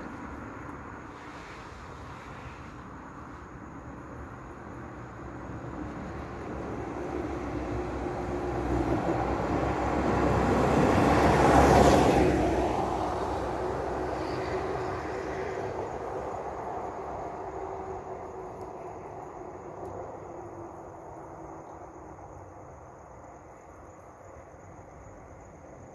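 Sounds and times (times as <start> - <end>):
tyres hissing on wet road: 0.0 - 20.4.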